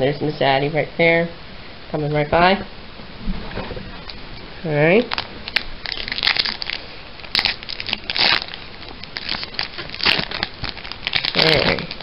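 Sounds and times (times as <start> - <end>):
foil wrapper crinkling and tearing: 5.0 - 12.0.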